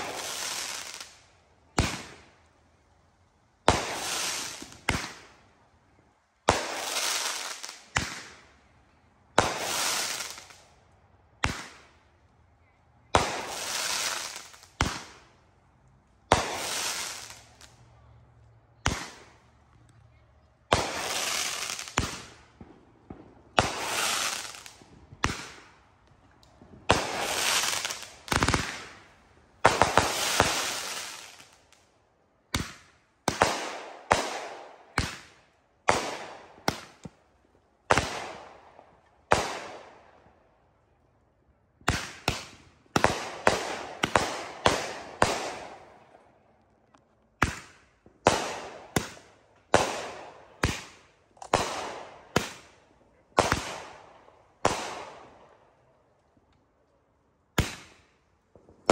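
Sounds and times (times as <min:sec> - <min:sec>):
fireworks bangs: 0:00.0 - 0:02.3, 0:03.6 - 0:05.4, 0:06.4 - 0:08.4, 0:09.3 - 0:10.6, 0:13.1 - 0:15.3, 0:16.2 - 0:17.8, 0:18.8 - 0:19.6, 0:20.7 - 0:25.9, 0:26.5 - 0:31.6, 0:41.8 - 0:46.2, 0:47.4 - 0:55.4.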